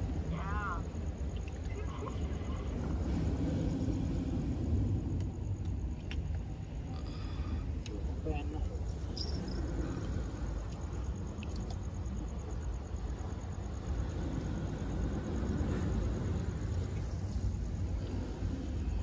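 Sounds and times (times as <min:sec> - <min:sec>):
surf on rocky shore: 0:00.0 - 0:05.6
wind: 0:00.0 - 0:19.0.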